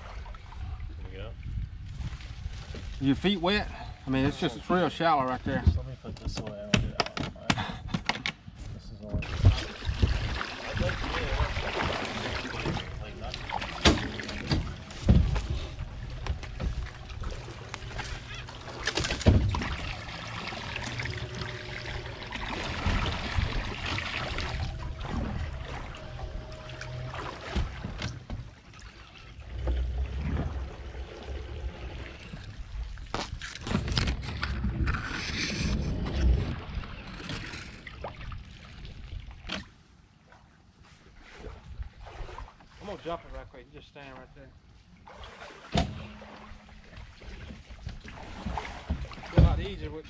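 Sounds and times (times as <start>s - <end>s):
water sloshing and splashing: 0.0s - 6.4s, 9.0s - 50.0s
low rumble: 9.1s - 28.6s, 29.4s - 39.4s.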